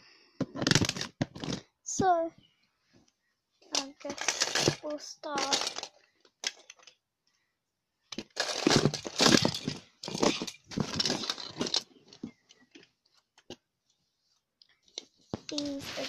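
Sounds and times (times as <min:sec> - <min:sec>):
plastic toys clattering: 0:00.4 - 0:01.7, 0:03.7 - 0:07.0, 0:08.1 - 0:13.6, 0:14.7 - 0:16.0.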